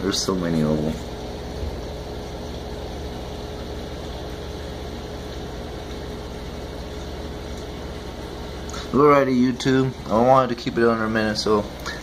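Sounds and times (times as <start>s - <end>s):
aquarium pump humming: 0.0s - 12.0s.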